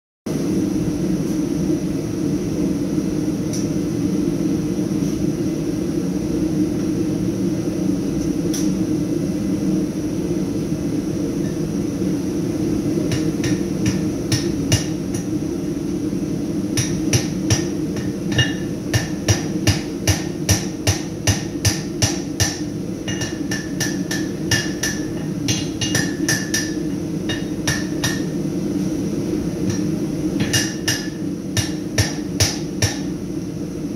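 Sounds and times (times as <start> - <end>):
continuous low roar: 0.3 - 33.9
hammer ringing on anvil: 16.8 - 28.3, 30.4 - 33.1.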